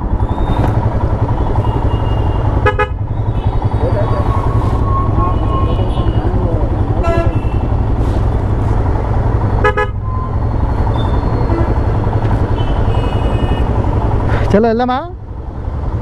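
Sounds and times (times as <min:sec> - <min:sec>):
motorcycle engines rumbling: 0:00.0 - 0:16.0
motorcycle horn toots: 0:01.5 - 0:03.8, 0:04.5 - 0:07.8, 0:09.6 - 0:10.1.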